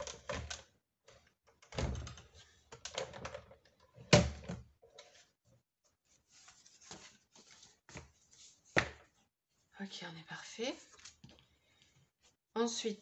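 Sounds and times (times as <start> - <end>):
paper shuffling: 6.0 - 9.2.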